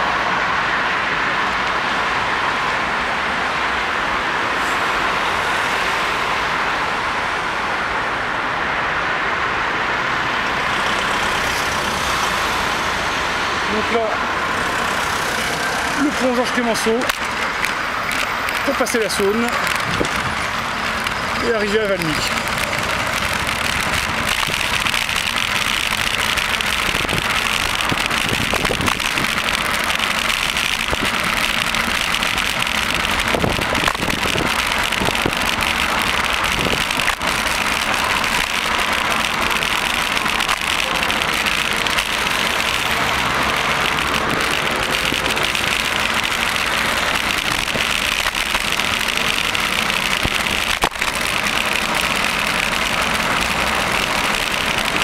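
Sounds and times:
cars passing: 0.0 - 55.0
sharp clicks: 20.9 - 55.0.

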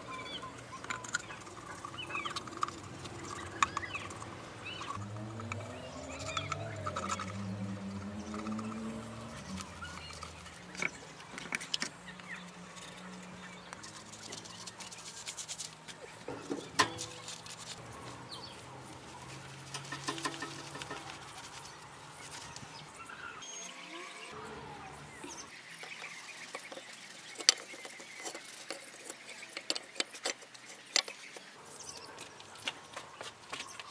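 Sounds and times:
brush and trowel scraping tin: 0.0 - 5.5, 13.8 - 17.8, 19.3 - 22.6, 25.5 - 32.0.

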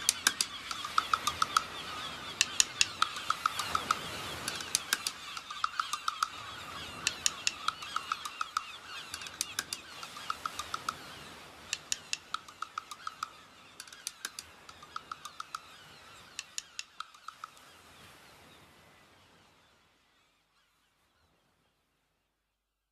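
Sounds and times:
sharp electronic clicks: 0.0 - 1.7, 2.4 - 11.0, 11.7 - 15.6
short chirping blips: 0.0 - 15.6.

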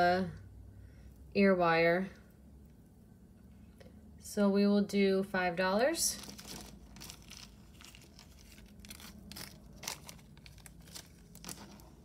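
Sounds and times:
wrapping crinkling and rustling: 6.1 - 12.0.

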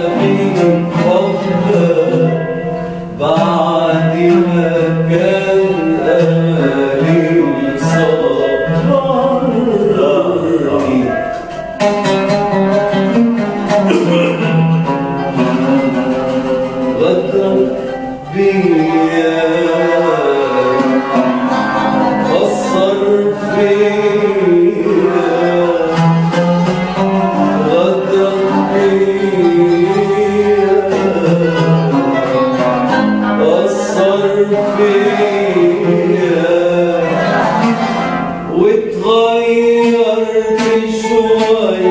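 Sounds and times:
man singing: 0.0 - 41.9
oud and qanun melody: 0.0 - 41.9.

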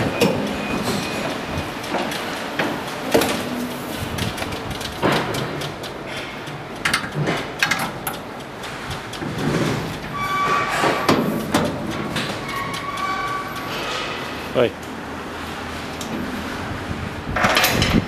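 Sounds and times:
knocks and clicks: 0.0 - 15.0.

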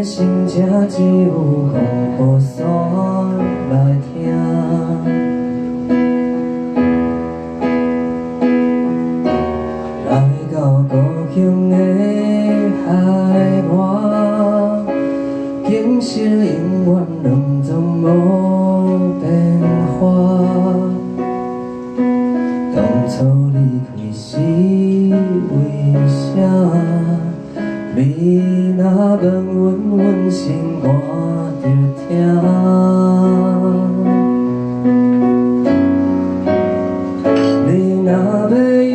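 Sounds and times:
man singing into microphone: 0.0 - 6.2, 9.7 - 35.2, 37.2 - 38.9
keyboard piano chords: 0.0 - 38.9.

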